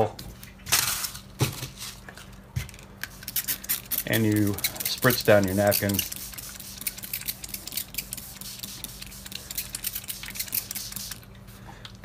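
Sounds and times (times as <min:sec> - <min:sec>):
spray bottle squirts: 0:03.2 - 0:11.2.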